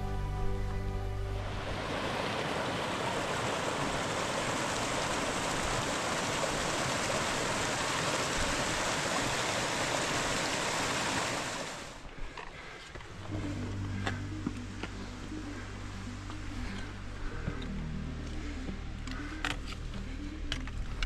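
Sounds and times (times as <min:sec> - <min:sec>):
stream water rushing: 0:01.2 - 0:12.1.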